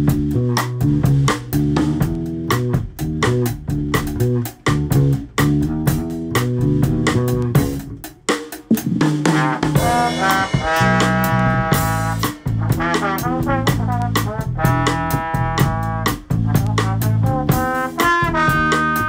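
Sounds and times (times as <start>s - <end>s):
drums: 0.0s - 19.0s
walking electric bass line: 0.0s - 19.0s
trombone holding notes: 9.3s - 19.0s.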